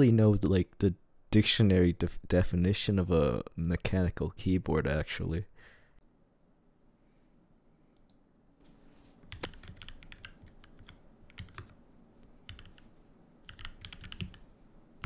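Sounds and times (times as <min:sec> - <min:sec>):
faint clicks: 0:08.0 - 0:08.2
mechanical keyboard typing: 0:09.3 - 0:11.8, 0:12.4 - 0:12.9, 0:13.5 - 0:14.5.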